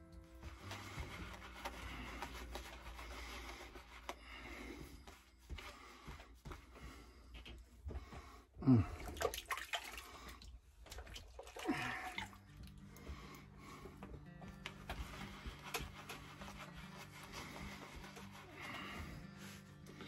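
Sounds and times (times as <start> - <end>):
water splashing and dripping: 9.0 - 12.4.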